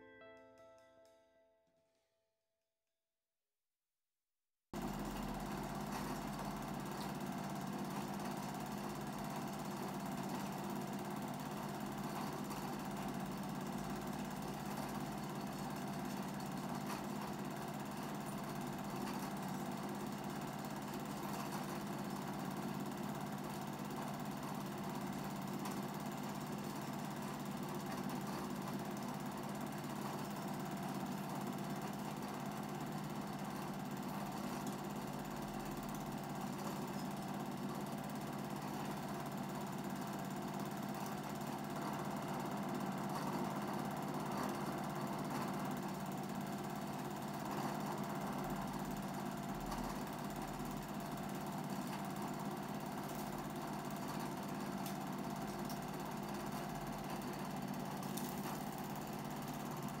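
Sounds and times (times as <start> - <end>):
film projector whirring: 4.8 - 60.0.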